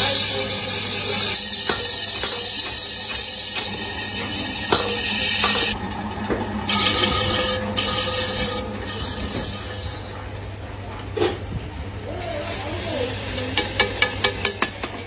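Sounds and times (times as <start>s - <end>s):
tool scraping spinning metal: 0.0s - 5.8s, 6.6s - 10.2s
lathe humming: 0.0s - 10.2s.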